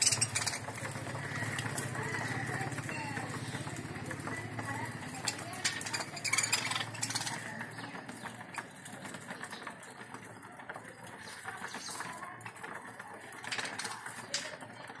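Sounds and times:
budgerigars chattering and chirping: 0.0 - 10.2.

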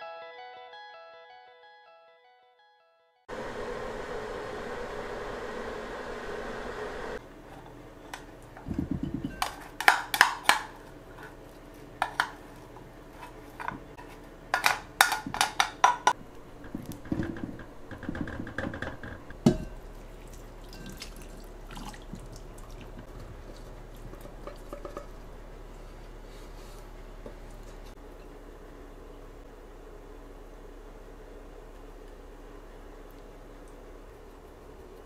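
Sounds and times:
dishes and utensils clinking: 7.5 - 11.4, 12.0 - 17.4, 19.4 - 19.9, 20.7 - 21.9, 23.6 - 25.2.

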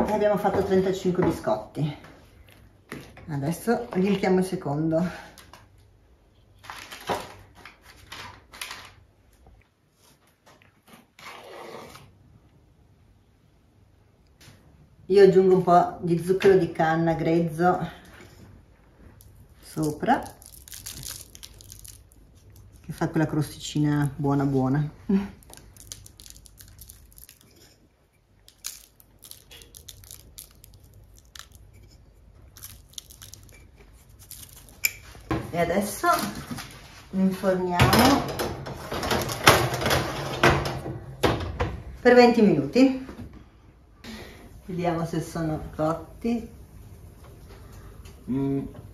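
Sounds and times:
sugar sprinkling on dough: 19.2 - 36.4
spoons scraping and tapping: 25.5 - 35.3.

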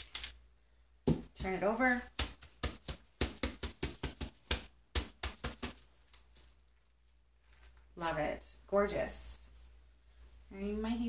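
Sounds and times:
fingers tapping wet paper: 1.1 - 6.4.

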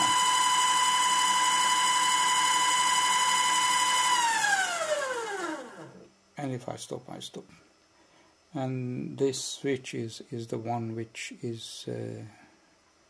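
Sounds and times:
servo motor high whine: 0.0 - 6.0.

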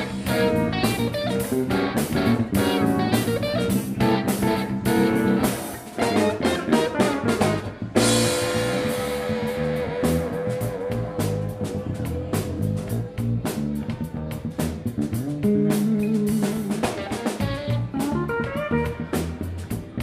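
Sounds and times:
pedal steel guitar: 0.0 - 12.6
drum kit steady beat: 0.0 - 20.0
electric bass: 0.0 - 20.0
electric guitar: 0.0 - 20.0.

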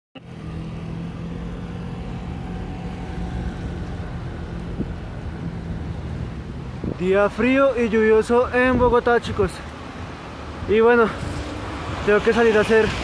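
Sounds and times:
motor traffic hum: 0.2 - 13.0
tyres hissing on wet road: 9.5 - 13.0.

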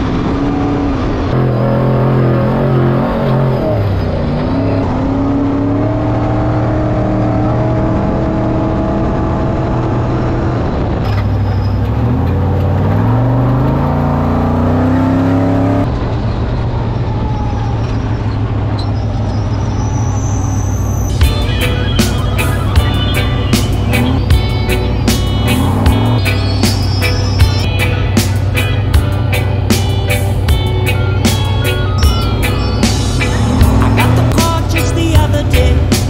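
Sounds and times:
truck engine under load: 0.0 - 36.0
wind and tyre noise: 0.0 - 36.0.

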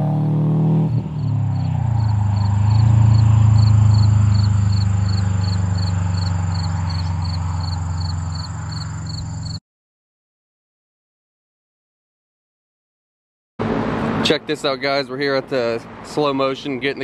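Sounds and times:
car exhaust drone: 0.0 - 9.6
insects chirping: 1.0 - 9.6.

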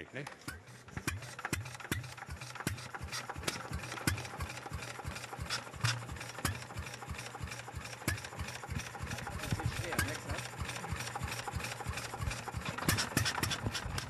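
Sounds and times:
stationary engine knocking: 0.2 - 14.0.

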